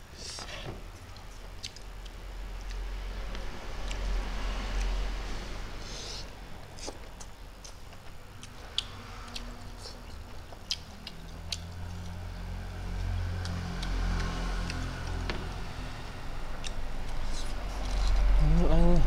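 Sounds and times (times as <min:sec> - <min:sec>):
steady low hum: 0:00.0 - 0:19.0
chewing and lip-smacking: 0:00.3 - 0:05.0, 0:06.6 - 0:15.2, 0:16.6 - 0:18.3.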